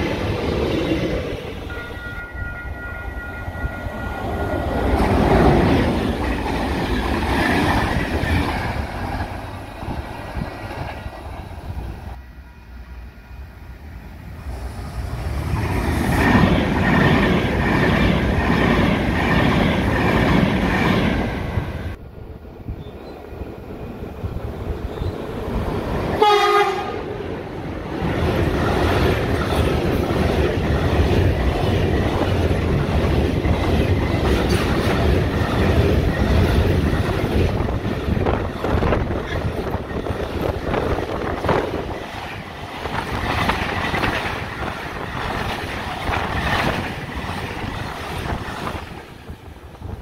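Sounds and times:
train wheels rumbling and clattering: 0.0s - 12.2s, 14.4s - 22.0s, 23.3s - 50.0s
locomotive horn blast: 26.2s - 27.1s.

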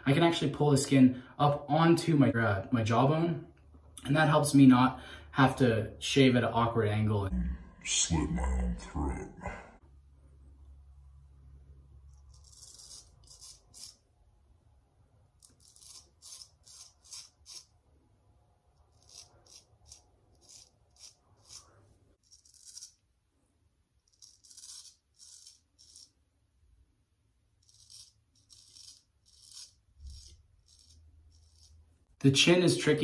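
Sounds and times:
straight razor cutting stubble: 12.1s - 14.0s, 15.4s - 17.8s, 18.7s - 23.1s, 24.0s - 26.2s, 27.5s - 31.8s.

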